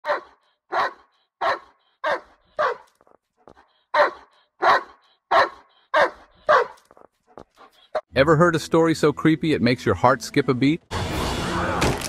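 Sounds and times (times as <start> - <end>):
dog barking: 0.0 - 8.1.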